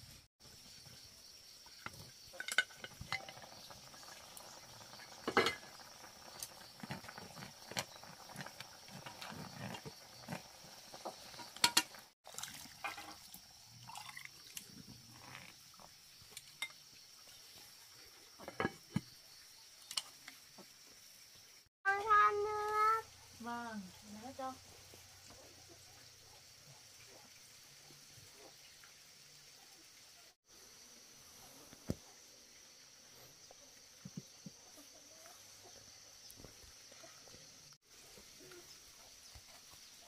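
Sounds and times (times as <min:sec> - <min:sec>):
liquid sounds: 0:01.9 - 0:20.7
utensils and dishes clinking: 0:02.3 - 0:03.5, 0:05.2 - 0:05.7, 0:11.4 - 0:12.0.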